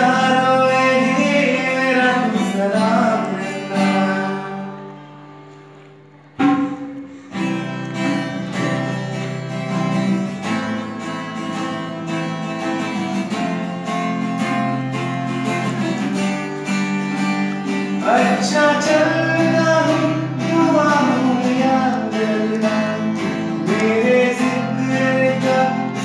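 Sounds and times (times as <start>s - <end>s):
acoustic guitar strumming: 0.0s - 26.0s
hand drums: 6.4s - 9.2s.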